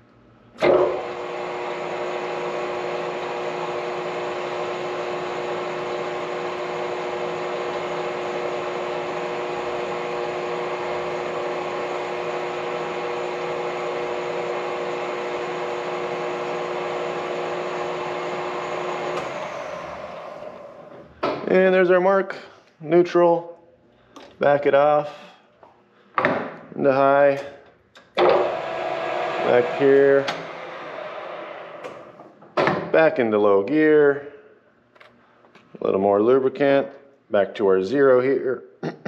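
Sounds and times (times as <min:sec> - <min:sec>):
metal lathe humming: 0:00.6 - 0:21.0, 0:28.2 - 0:32.2.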